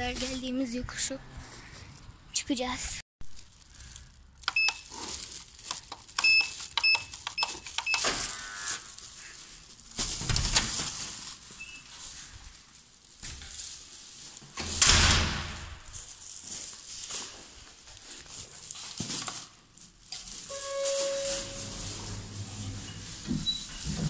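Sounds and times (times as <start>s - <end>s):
keypad beeps: 4.5s - 4.8s, 6.2s - 8.1s.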